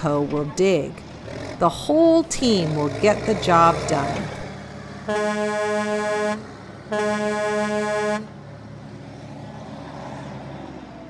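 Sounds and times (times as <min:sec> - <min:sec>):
truck horn honking: 0:05.0 - 0:08.4.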